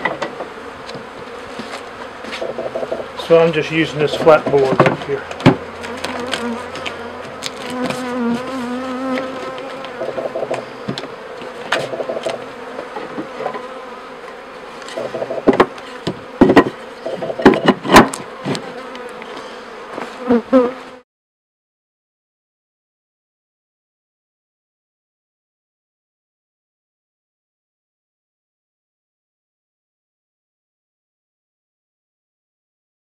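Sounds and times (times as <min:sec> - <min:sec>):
bees buzzing: 0:00.0 - 0:21.0
wooden board knocks: 0:04.2 - 0:05.6, 0:15.0 - 0:18.6.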